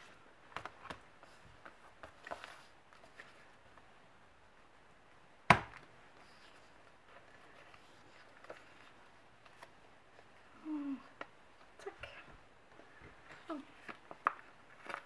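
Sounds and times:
paper rustling and tapping: 13.0s - 15.0s.

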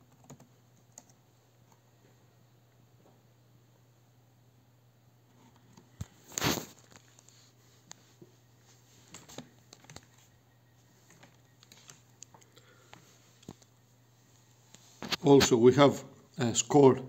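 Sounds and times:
low steady hum: 0.0s - 17.0s
laptop keys and touchpad clicks: 9.1s - 10.3s, 11.1s - 13.7s.

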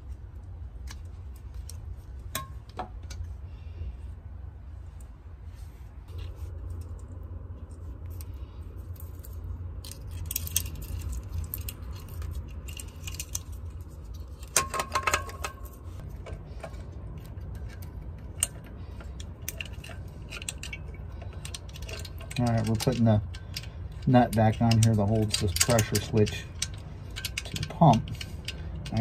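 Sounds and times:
metal parts clicking and clinking: 6.2s - 29.0s.

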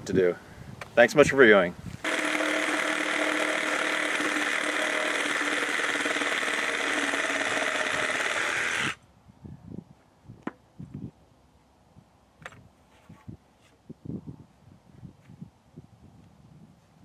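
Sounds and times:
reciprocating saw cutting wood: 2.0s - 9.0s.

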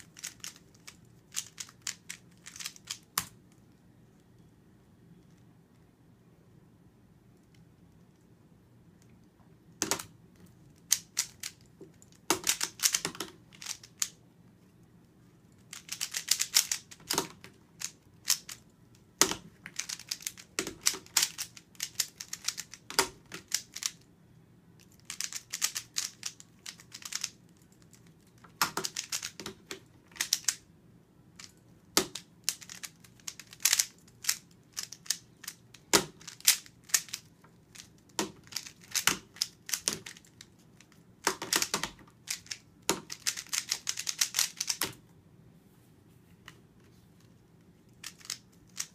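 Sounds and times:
puzzle cube plastic clicks: 0.0s - 3.6s, 9.8s - 14.2s, 15.6s - 24.1s, 24.8s - 30.6s, 31.4s - 45.0s, 48.0s - 48.9s.

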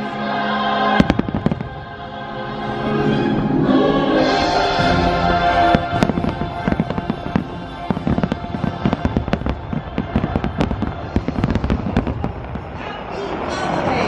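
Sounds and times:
fireworks show music: 0.0s - 14.0s
fireworks bursting: 0.9s - 14.0s.

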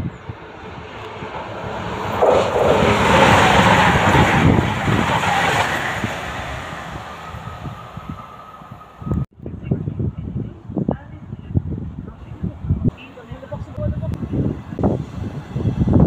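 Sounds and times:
train passing at speed: 0.0s - 9.2s, 13.6s - 16.0s.

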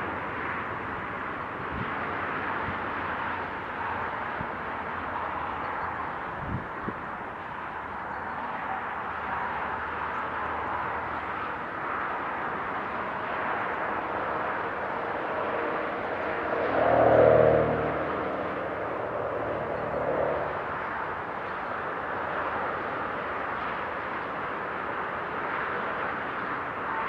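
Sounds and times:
motorway traffic tyre noise: 0.0s - 27.0s
vehicle engine passing: 15.5s - 20.8s.

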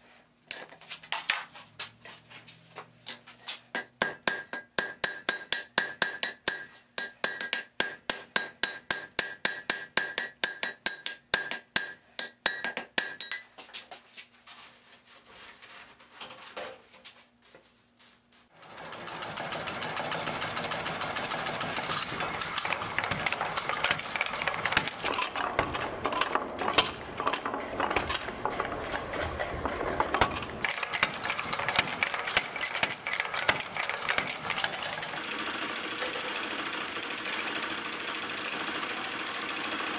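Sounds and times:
hammer striking steel on anvil: 3.7s - 13.6s, 21.4s - 25.1s
power hammer clattering: 3.8s - 13.5s, 18.6s - 39.9s.

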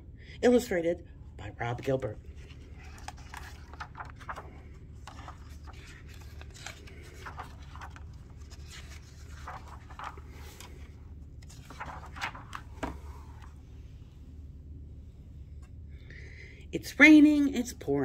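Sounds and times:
steady low hum: 0.0s - 18.0s
book pages turning: 1.8s - 14.0s.

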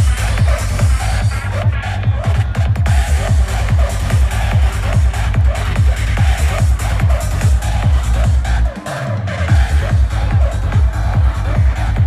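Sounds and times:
kick drum: 0.0s - 8.5s, 9.5s - 12.0s
electronic dance music: 0.0s - 12.0s.

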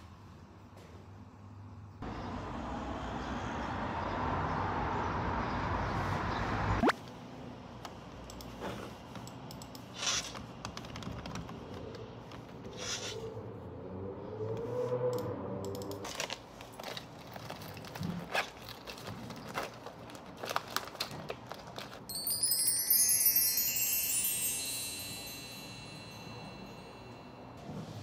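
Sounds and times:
street traffic noise: 0.0s - 21.7s, 23.9s - 28.0s
objects being handled: 16.0s - 22.5s.

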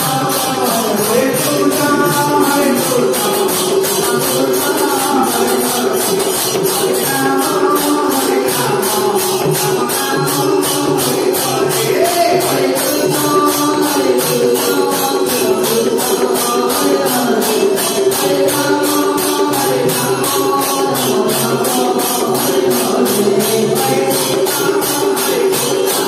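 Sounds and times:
jingling percussion beat: 0.0s - 26.0s.

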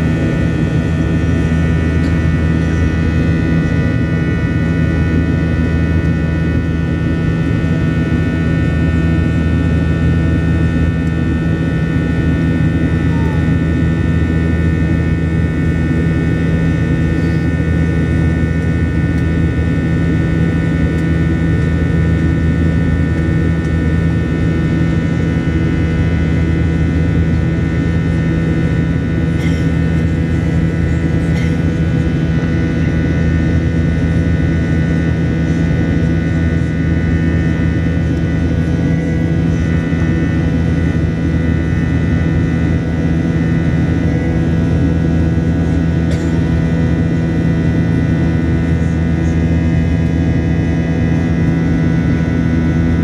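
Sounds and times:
airliner cabin engine drone: 0.0s - 53.0s.

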